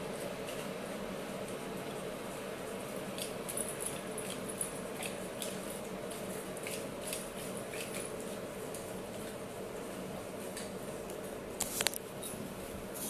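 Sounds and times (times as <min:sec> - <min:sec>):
dog gnawing corn cob: 0:00.0 - 0:13.0.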